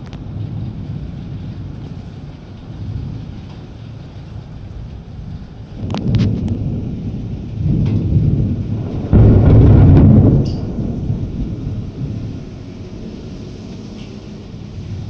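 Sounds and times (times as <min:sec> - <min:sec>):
thunder crackles: 0:00.0 - 0:15.0
thunder rumble: 0:00.0 - 0:15.0
loud thunder clap: 0:05.2 - 0:15.0.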